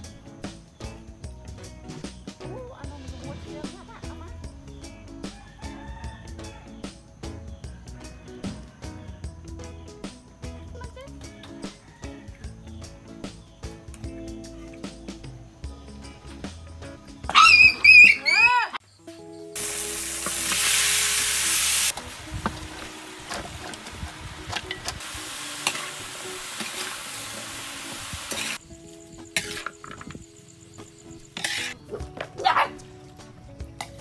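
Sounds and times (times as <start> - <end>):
puppy yelps: 17.3 - 18.8, 31.9 - 32.8
food sizzling in a wok: 19.6 - 31.8
metal spatula scraping pan: 29.3 - 30.1, 31.3 - 31.8.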